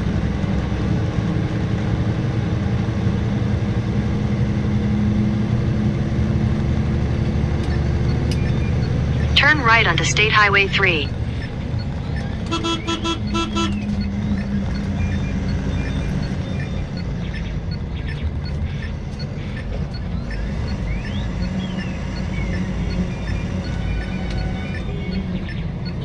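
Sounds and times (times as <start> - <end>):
lorry engine and road drone: 0.0 - 26.0.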